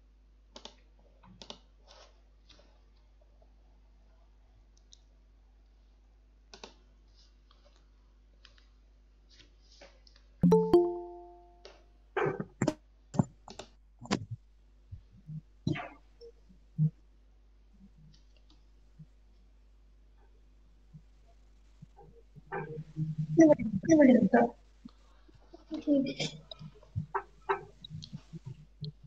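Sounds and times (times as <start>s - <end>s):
keyboard and mouse clicks: 0.6s - 1.7s, 6.5s - 6.8s
electronic two-tone chime: 10.4s - 11.6s.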